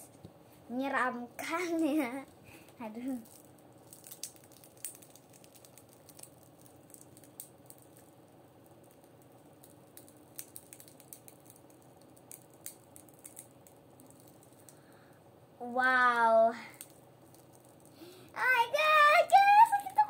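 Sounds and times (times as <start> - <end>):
cracked glass screen protector crackling: 3.0 - 14.8, 16.8 - 18.0.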